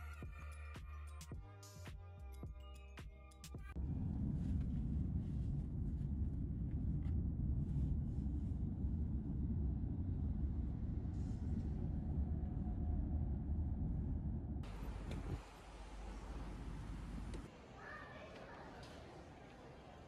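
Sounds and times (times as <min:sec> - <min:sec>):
car road and engine noise: 0:03.7 - 0:17.5.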